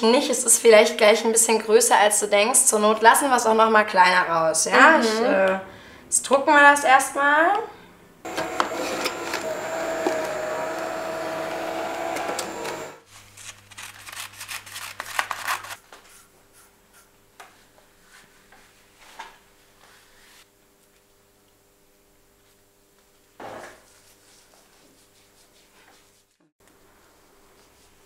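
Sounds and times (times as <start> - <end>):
printer running with whine: 8.3 - 13.0
scissors snipping paper: 13.4 - 15.8.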